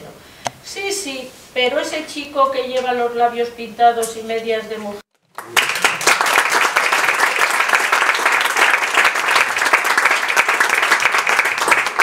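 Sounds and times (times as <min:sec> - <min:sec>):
audience applauding: 0:05.3 - 0:12.0.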